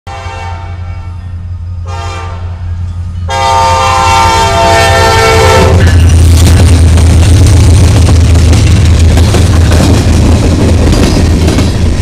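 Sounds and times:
locomotive air horn blasts: 0:00.1 - 0:01.1, 0:01.8 - 0:02.6, 0:03.3 - 0:06.0
diesel engine rumble: 0:05.4 - 0:12.0.

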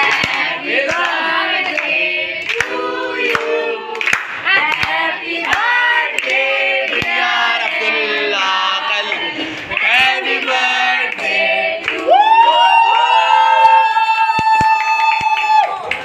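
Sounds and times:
people clapping in time: 0:00.0 - 0:07.8, 0:09.0 - 0:12.7, 0:13.8 - 0:16.0
group singing birthday song: 0:00.0 - 0:12.5.

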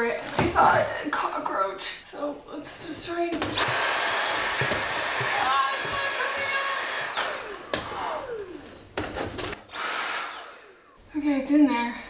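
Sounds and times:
handheld vacuum cleaner running: 0:03.4 - 0:10.9
vacuum motor winding down: 0:03.6 - 0:11.0.

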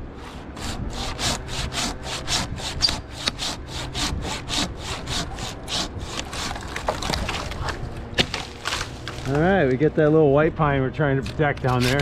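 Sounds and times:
handsaw cutting wood: 0:00.1 - 0:07.5, 0:11.4 - 0:12.0.

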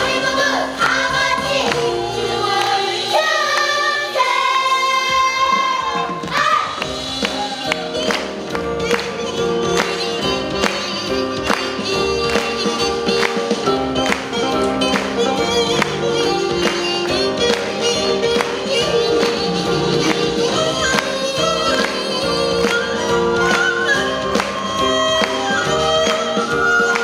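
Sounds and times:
traditional music with held melody: 0:06.1 - 0:27.0.

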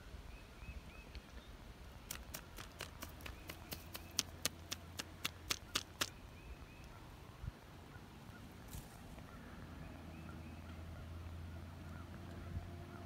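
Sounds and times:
sharp clicks: 0:02.0 - 0:06.2.

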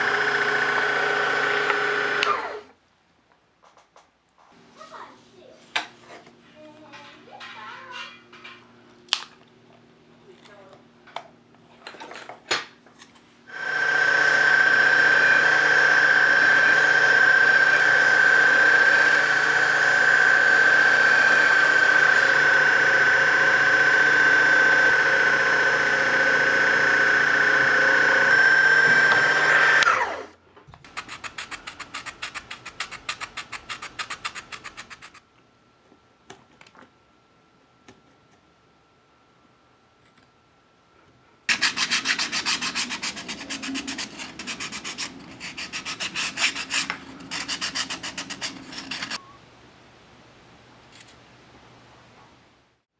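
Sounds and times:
small electric drill boring wood: 0:00.0 - 0:02.7, 0:13.5 - 0:30.4
scraping wood by hand: 0:41.5 - 0:49.2.

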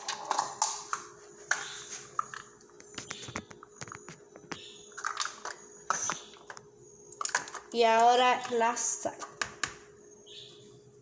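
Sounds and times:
plastic spoons clicking and rattling: 0:04.9 - 0:06.6, 0:07.2 - 0:09.7.

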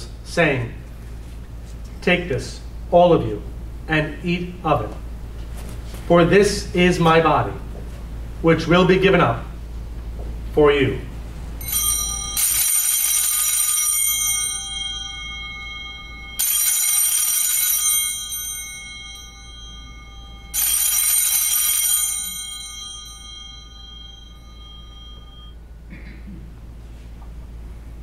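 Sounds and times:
small hand bells jingling: 0:11.6 - 0:25.6.

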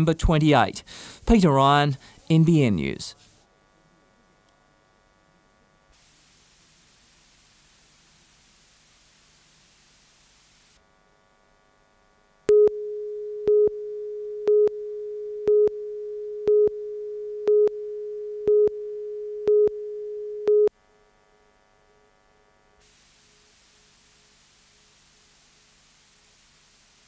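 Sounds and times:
countdown pips: 0:12.5 - 0:20.7
steady line-up tone: 0:12.5 - 0:20.7.

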